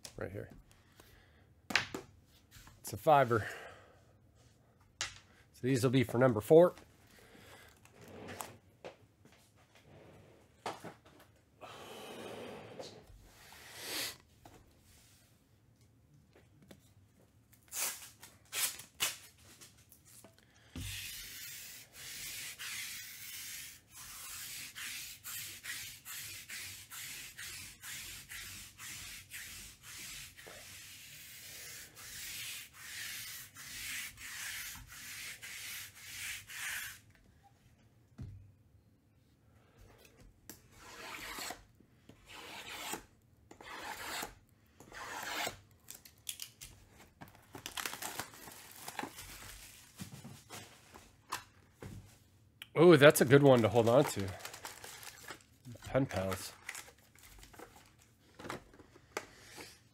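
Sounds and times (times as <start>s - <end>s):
scratchy rubbing strokes: 20.9s - 37.0s, 40.8s - 41.6s
hands rustling card packaging: 45.8s - 51.6s, 53.1s - 59.6s.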